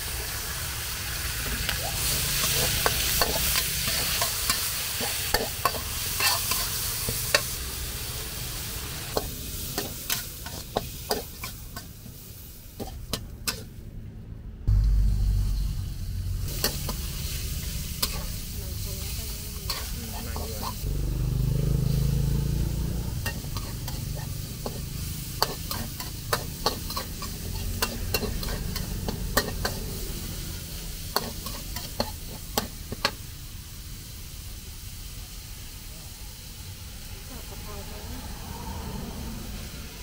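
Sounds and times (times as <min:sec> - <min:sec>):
food sizzling in a wok: 0:00.0 - 0:13.9, 0:14.7 - 0:40.0
metal spatula scraping a wok: 0:02.1 - 0:07.6, 0:08.6 - 0:13.8, 0:16.4 - 0:20.8, 0:23.2 - 0:33.2
low rumble: 0:13.8 - 0:21.4, 0:37.8 - 0:40.0.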